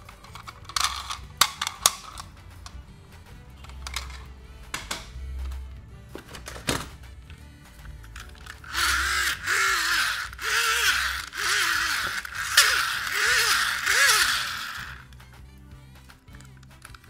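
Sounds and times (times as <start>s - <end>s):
toy gearbox grinding whirs: 0.0s - 2.8s, 3.6s - 4.2s, 8.0s - 15.2s.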